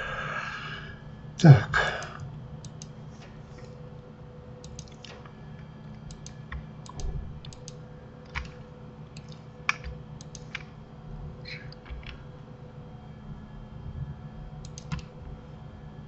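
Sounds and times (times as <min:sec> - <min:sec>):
steady low hum: 0:00.0 - 0:16.0
keyboard and mouse clicks: 0:01.9 - 0:03.0, 0:04.6 - 0:05.4, 0:06.0 - 0:08.6, 0:09.2 - 0:10.7, 0:11.5 - 0:12.2, 0:14.6 - 0:15.1.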